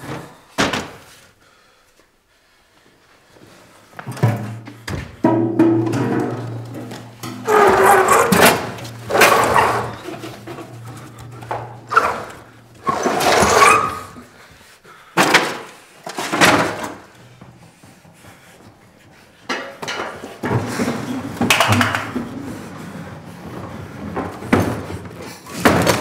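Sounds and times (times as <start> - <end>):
loud bangs and thuds: 5.2 - 12.4.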